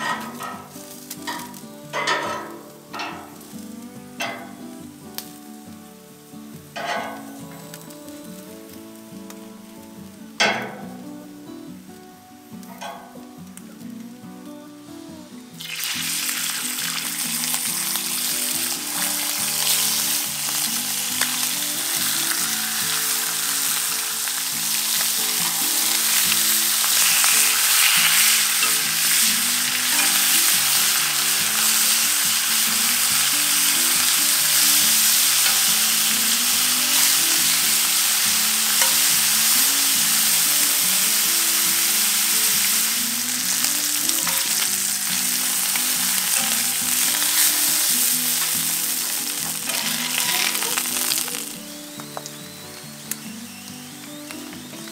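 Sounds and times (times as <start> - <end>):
bacon sizzling in a pan: 0.0 - 54.9
metal tongs moving bacon: 15.6 - 40.4, 41.1 - 51.6.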